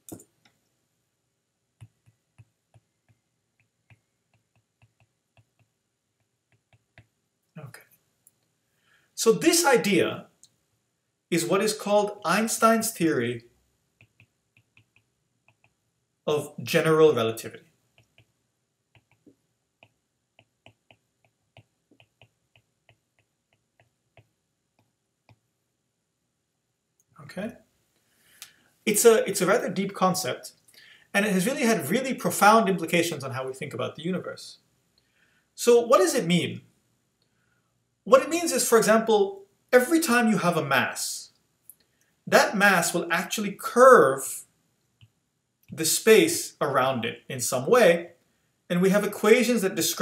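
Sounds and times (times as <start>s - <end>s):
stylus tapping on tablet: 1.8s - 7.2s, 14.0s - 15.8s, 18.9s - 25.4s.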